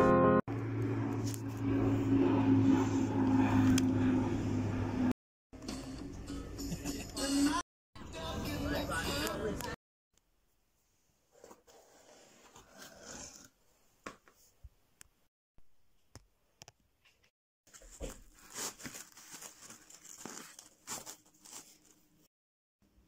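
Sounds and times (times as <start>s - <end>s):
rustling and crinkling: 17.0s - 22.3s.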